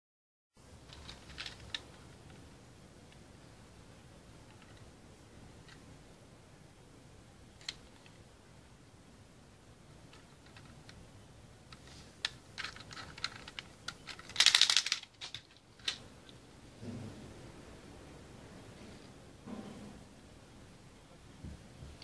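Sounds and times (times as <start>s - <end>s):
plastic toy clicks: 11.7s - 16.0s.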